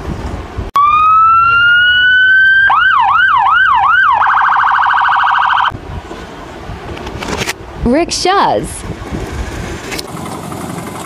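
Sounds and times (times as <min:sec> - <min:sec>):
electronic police siren: 0:00.8 - 0:05.8.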